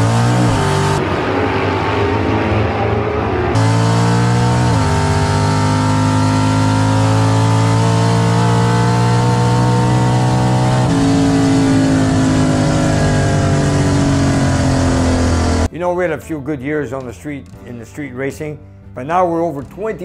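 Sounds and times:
race car engine at full throttle: 0.0s - 15.7s.

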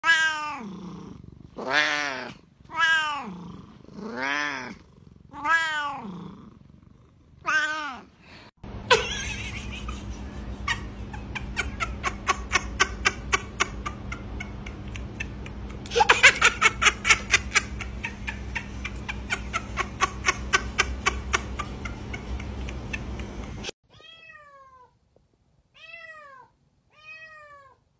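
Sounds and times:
cat meowing: 0.0s - 0.7s, 1.6s - 3.3s, 4.2s - 6.1s, 7.4s - 8.1s
steady low hum: 8.2s - 23.7s.

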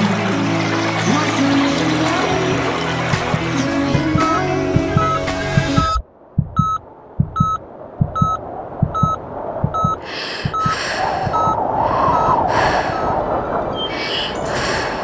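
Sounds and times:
soft low thumps: 3.3s - 11.6s
short high beeps: 5.0s - 10.7s.

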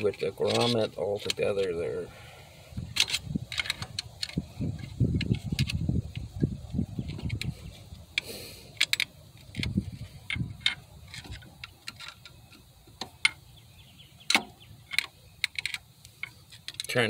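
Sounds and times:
tools clicking on metal: 0.2s - 1.7s, 14.3s - 17.0s.

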